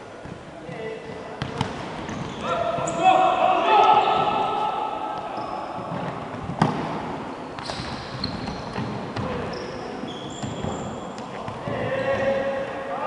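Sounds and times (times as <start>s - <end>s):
sneakers squeaking on floor: 0.2s - 3.1s, 5.2s - 12.6s.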